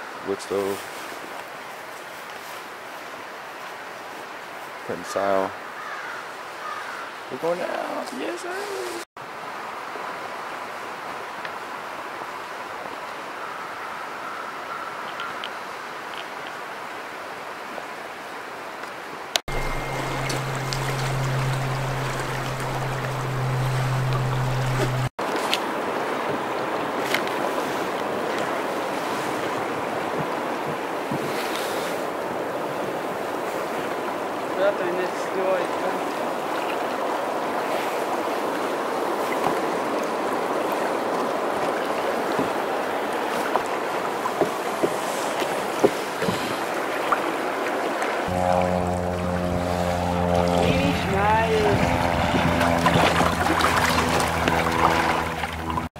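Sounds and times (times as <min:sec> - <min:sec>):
river water rushing: 0:15.1 - 0:55.9
low hum: 0:19.5 - 0:25.1, 0:48.3 - 0:55.9.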